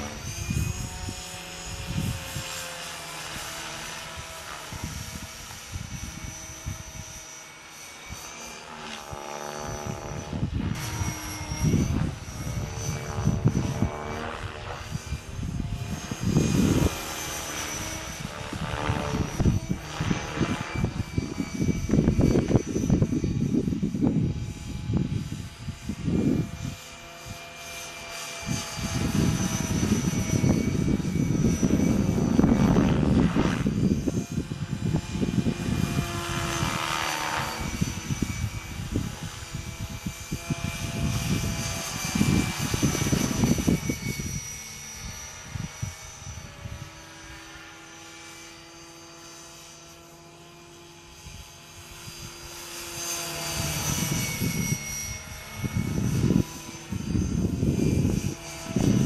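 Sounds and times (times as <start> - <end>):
high motor and gear whine: 0.0 - 59.0
rc helicopter rotor noise: 0.0 - 59.0.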